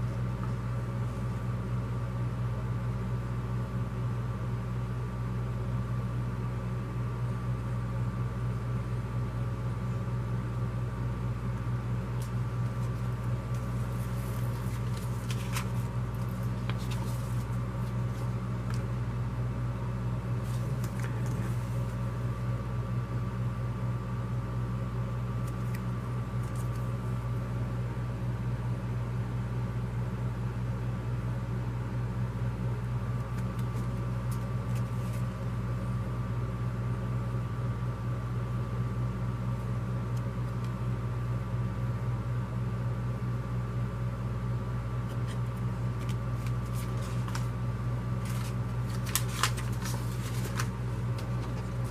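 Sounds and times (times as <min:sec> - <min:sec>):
low room hum: 0:00.0 - 0:51.9
paper rustling and clicking: 0:12.2 - 0:18.9, 0:20.4 - 0:22.0, 0:25.4 - 0:27.0, 0:33.2 - 0:35.4, 0:45.1 - 0:47.6, 0:48.2 - 0:51.9.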